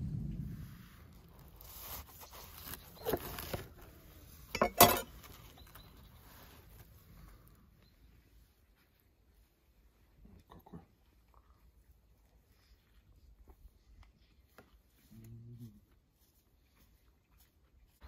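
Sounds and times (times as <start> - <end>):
rustling and crackling of burger: 0.3 - 10.3.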